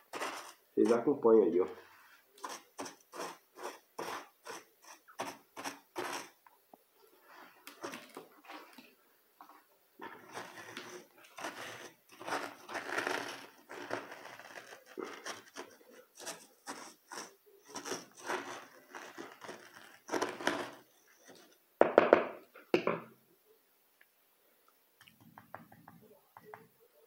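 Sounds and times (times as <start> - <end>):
hand tool scraping gritty soil: 0.0 - 6.4, 10.0 - 21.6.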